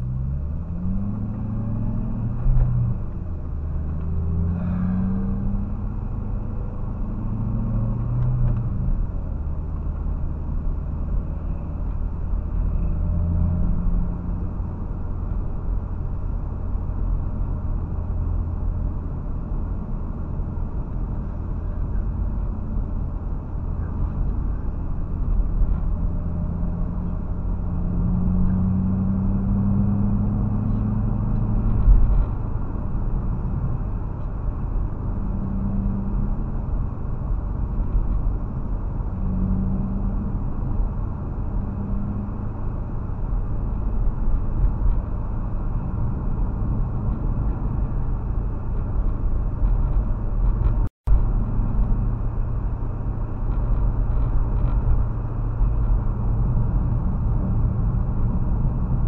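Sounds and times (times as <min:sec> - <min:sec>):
car engine hum: 0:00.0 - 0:59.0.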